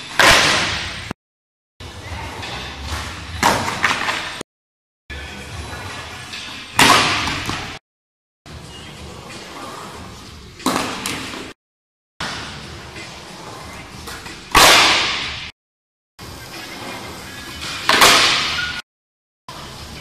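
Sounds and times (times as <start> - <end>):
skateboard wheels rolling on concrete: 8.5 - 11.6, 12.2 - 14.5, 16.2 - 18.7.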